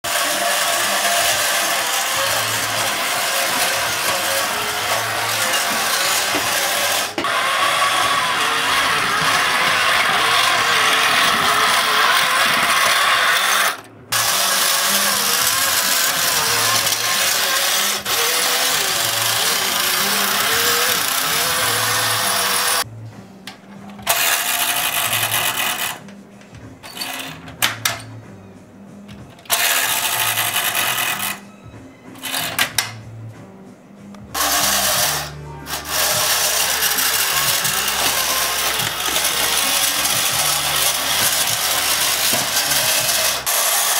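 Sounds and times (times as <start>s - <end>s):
toy truck electric motor running: 0.0s - 22.9s, 24.0s - 26.0s, 26.9s - 27.8s, 29.4s - 31.4s, 32.2s - 32.8s, 34.3s - 43.9s.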